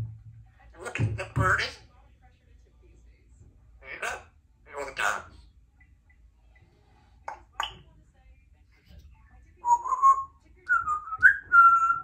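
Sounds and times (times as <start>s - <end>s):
parrot whistling: 9.7s - 12.0s.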